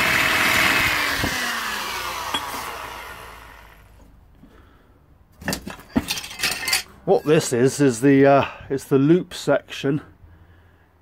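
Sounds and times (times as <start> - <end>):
die grinder whine spinning down: 0.0 - 4.1.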